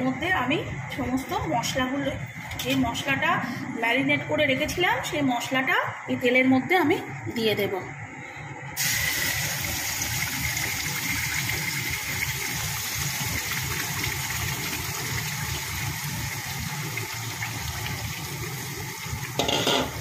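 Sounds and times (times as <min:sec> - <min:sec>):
marinade sizzling in hot oil: 0:08.8 - 0:20.0.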